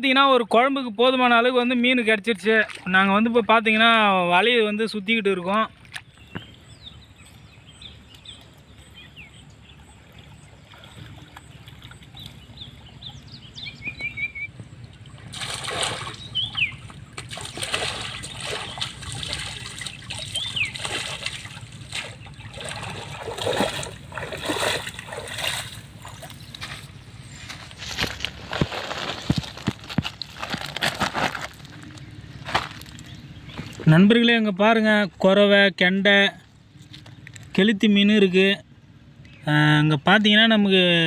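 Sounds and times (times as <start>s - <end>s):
water splashing and sloshing: 2.3s - 4.0s, 5.4s - 33.8s.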